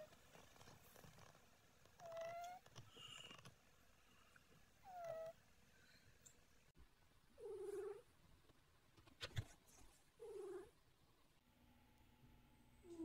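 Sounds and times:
cat snoring with squeaks: 2.0s - 3.5s.

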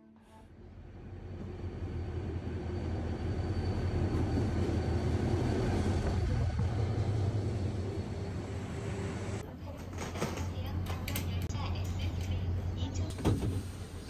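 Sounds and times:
locomotive engine droning: 0.4s - 9.6s.

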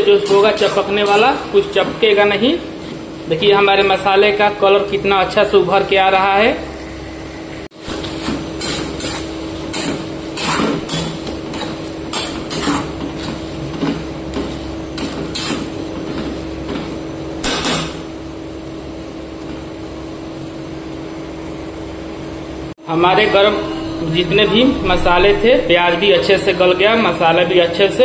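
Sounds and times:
steady low hum: 19.8s - 28.0s.

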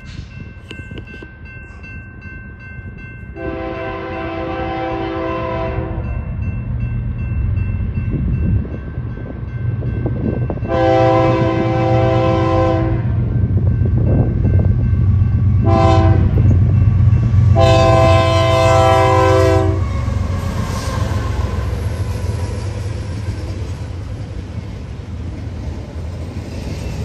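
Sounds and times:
train rumble: 0.0s - 27.0s
locomotive air horn: 3.4s - 6.0s, 10.7s - 13.2s, 15.6s - 16.4s, 17.5s - 21.7s.

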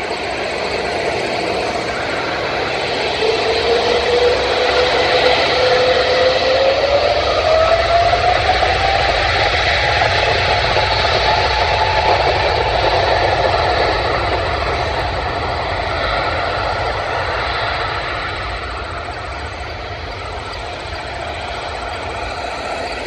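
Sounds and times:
jet engine rush: 0.0s - 23.0s.

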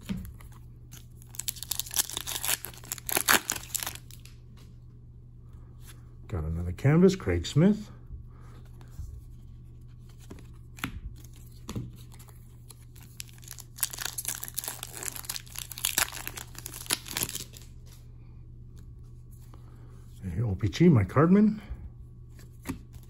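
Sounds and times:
low steady hum: 0.0s - 23.0s
foil wrapper tearing and crinkling: 1.2s - 4.3s, 12.7s - 17.7s.

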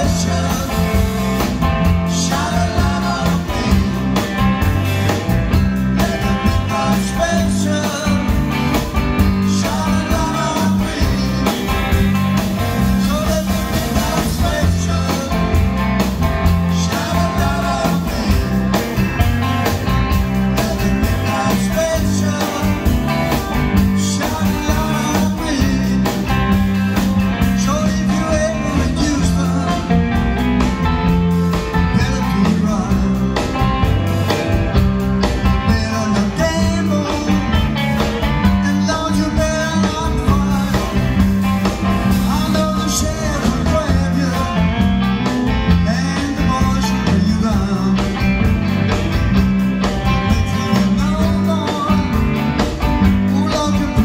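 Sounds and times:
bass guitar: 0.0s - 54.0s
drum kit beat: 0.0s - 54.0s
electric guitars: 0.0s - 54.0s.

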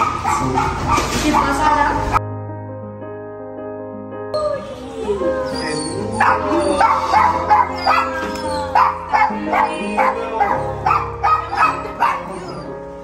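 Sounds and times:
dog barking: 0.0s - 2.2s, 5.9s - 12.7s
background music with held tones: 1.6s - 13.0s.

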